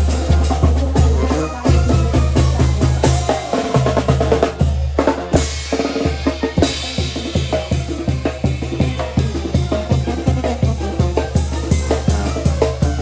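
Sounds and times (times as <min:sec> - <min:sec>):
carnival band music: 0:00.0 - 0:13.0
rapid drum strokes: 0:00.0 - 0:13.0.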